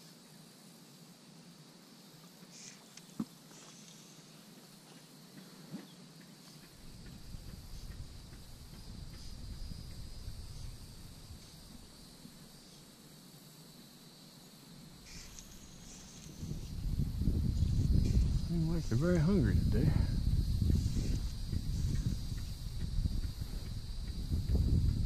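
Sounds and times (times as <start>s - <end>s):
insects droning: 0.0s - 25.0s.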